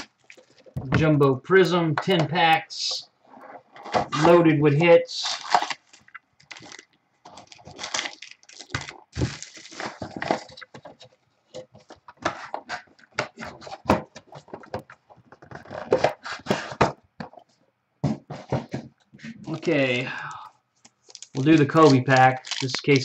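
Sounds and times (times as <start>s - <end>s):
foil packs crinkling: 0.0s - 0.8s, 5.2s - 11.1s, 21.0s - 23.0s.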